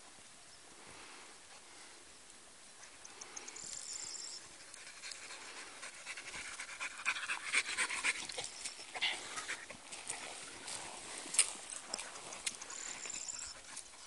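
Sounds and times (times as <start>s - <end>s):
dog panting: 4.6s - 14.0s.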